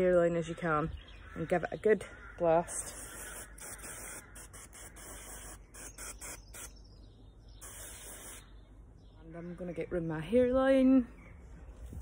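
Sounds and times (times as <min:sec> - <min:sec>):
aerosol can spraying: 0:02.9 - 0:06.8, 0:07.6 - 0:08.4.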